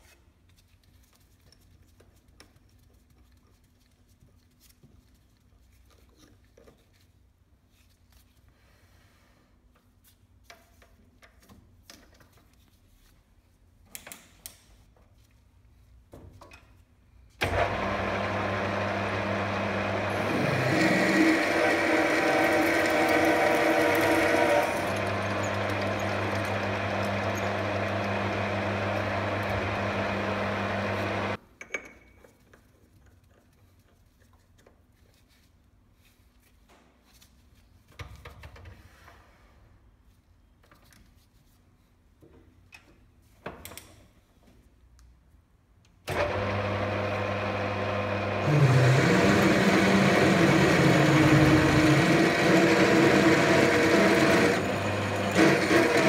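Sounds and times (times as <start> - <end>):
lathe motor humming: 17.5 - 31.4, 46.1 - 56.0
gritty grinding of drill bit: 19.2 - 31.4, 48.4 - 56.0.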